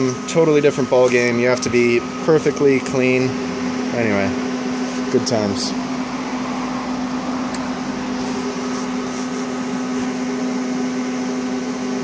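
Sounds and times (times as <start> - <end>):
electrical hum: 0.0 - 12.0
fan-like rushing noise: 3.3 - 11.0.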